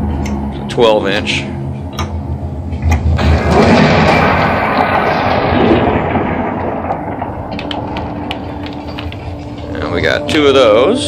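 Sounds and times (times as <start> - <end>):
burst of deep noise: 2.8 - 9.9.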